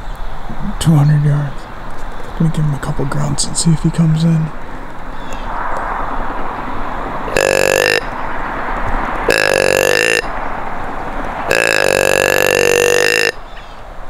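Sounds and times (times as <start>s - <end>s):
deer grunt call: 7.3s - 8.1s, 9.3s - 10.3s, 11.5s - 13.4s.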